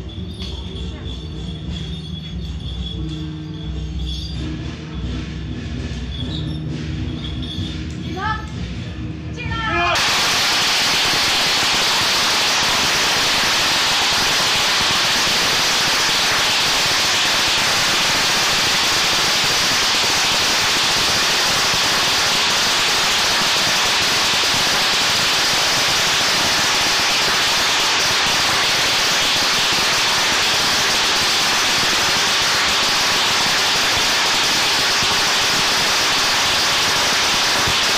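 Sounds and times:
firecrackers crackling: 0:09.9 - 0:37.9.

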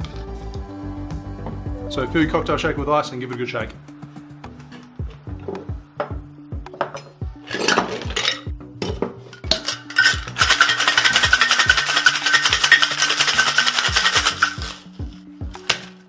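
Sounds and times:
ice clattering into metal tin: 0:07.5 - 0:08.5, 0:09.5 - 0:14.9
ice rattling in shaker: 0:07.5 - 0:08.5, 0:09.5 - 0:15.9.

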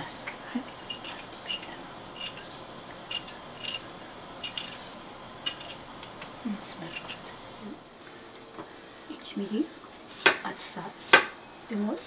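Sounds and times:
knife scraping ginger skin: 0:00.8 - 0:05.8, 0:06.7 - 0:07.3, 0:11.0 - 0:11.3.

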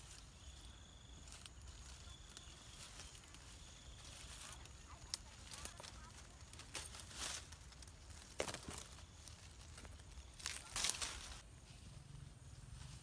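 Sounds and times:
branch click: 0:04.6 - 0:09.0.

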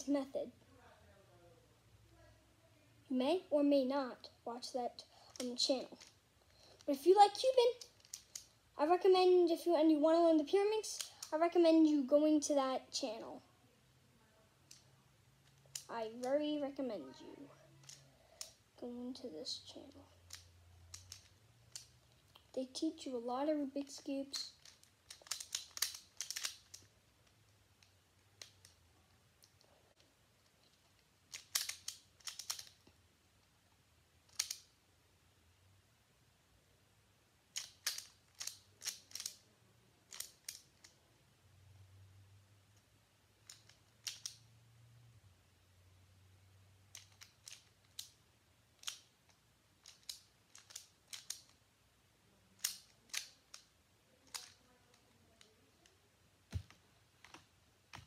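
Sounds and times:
puzzle cube clicking: 0:05.0 - 0:08.6, 0:10.2 - 0:11.5, 0:14.6 - 0:16.4, 0:17.8 - 0:18.6, 0:19.7 - 0:23.2, 0:23.8 - 0:28.8, 0:30.4 - 0:33.0, 0:34.2 - 0:34.7, 0:37.5 - 0:39.4, 0:40.1 - 0:41.0, 0:43.4 - 0:44.5, 0:46.9 - 0:51.6, 0:52.6 - 0:58.0.

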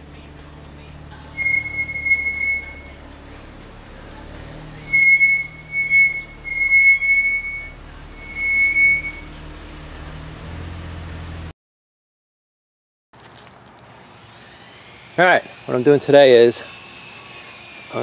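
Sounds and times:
car engine idling: 0:00.0 - 0:06.5, 0:07.4 - 0:08.3
car brakes squealing: 0:01.4 - 0:03.2, 0:04.6 - 0:09.6.

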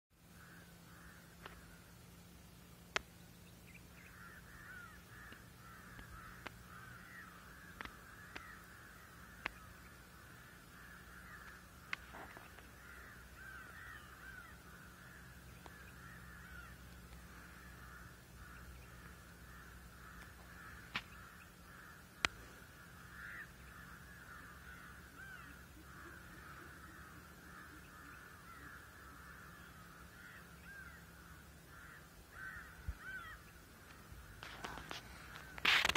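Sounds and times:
chorus of chirping animal calls: 0:03.7 - 0:35.9
sharp clicks: 0:09.4 - 0:09.6.

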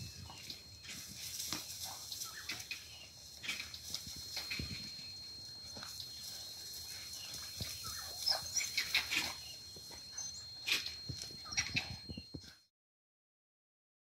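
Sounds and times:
faint steady high tone: 0:00.0 - 0:12.7
short high-pitched animal calls: 0:10.2 - 0:12.1.

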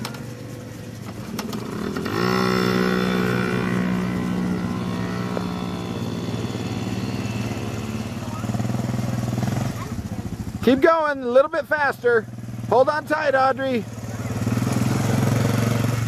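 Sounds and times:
quad bike engine revving: 0:00.0 - 0:16.0.

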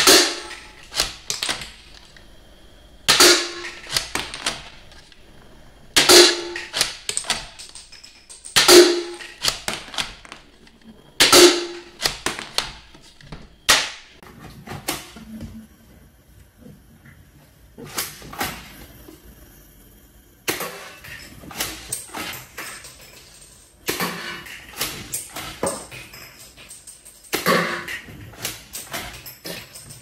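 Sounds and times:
toy rifle shot crack: 0:00.0 - 0:01.8, 0:03.1 - 0:04.7, 0:06.0 - 0:07.6, 0:08.5 - 0:10.4, 0:11.2 - 0:12.9, 0:13.7 - 0:14.1
plastic casings clicking on tile: 0:06.6 - 0:13.9.

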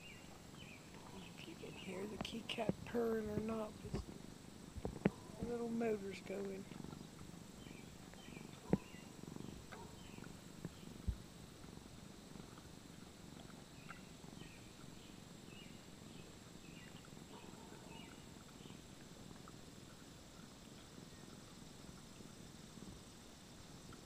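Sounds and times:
cat purring: 0:00.0 - 0:24.0.

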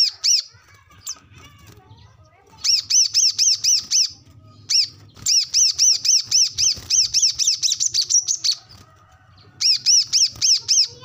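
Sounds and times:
bird singing fast chattering song: 0:00.0 - 0:01.3, 0:01.9 - 0:11.0.

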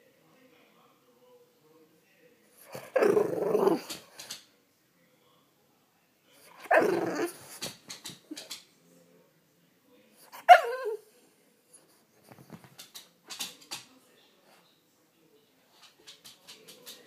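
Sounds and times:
dog barking: 0:06.6 - 0:07.5, 0:10.3 - 0:11.0.

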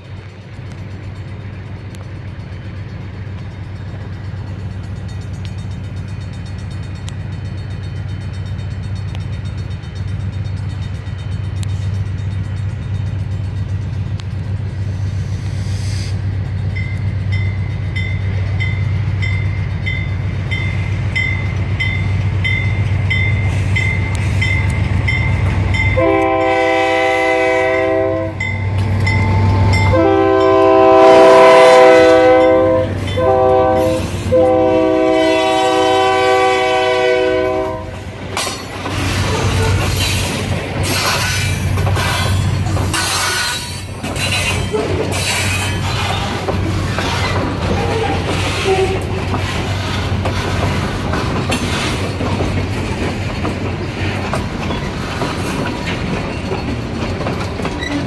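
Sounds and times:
locomotive engine rumble: 0:00.0 - 0:58.0
locomotive air horn blasts: 0:25.8 - 0:38.1, 0:47.9 - 0:49.2.

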